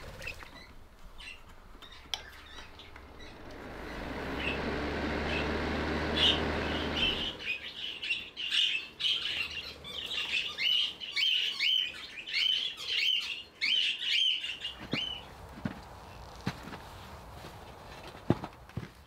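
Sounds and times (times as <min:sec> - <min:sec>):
fan heater humming: 0:00.0 - 0:08.4
budgerigars chattering: 0:01.2 - 0:04.6, 0:05.2 - 0:15.3.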